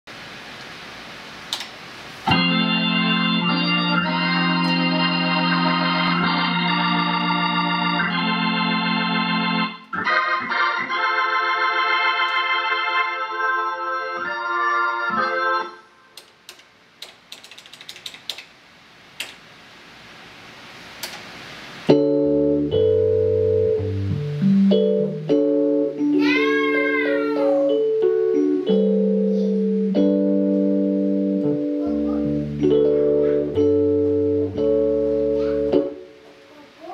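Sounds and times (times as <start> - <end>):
organ chords: 2.2 - 16.2, 21.9 - 36.3.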